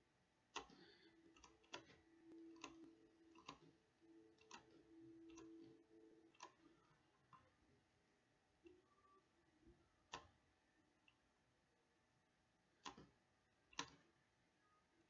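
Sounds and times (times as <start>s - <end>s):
faint low hum: 0.0s - 15.0s
computer mouse clicks: 0.5s - 7.5s, 12.8s - 14.2s.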